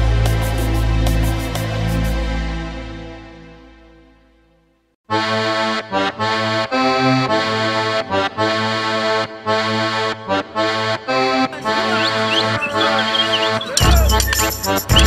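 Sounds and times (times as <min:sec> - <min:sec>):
accordion playing folk tune: 0:05.1 - 0:15.0.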